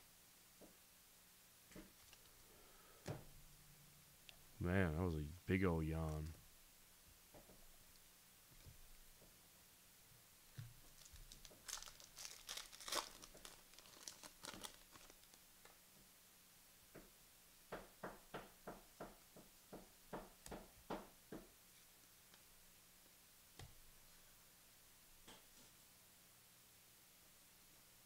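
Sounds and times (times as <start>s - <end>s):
wrapper crinkling and tearing: 10.8s - 15.4s.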